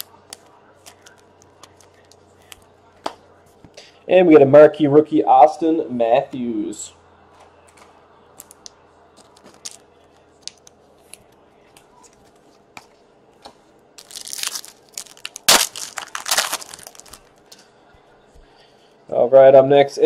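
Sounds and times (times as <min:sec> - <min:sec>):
wrapper crinkling and tearing: 0:14.0 - 0:17.3.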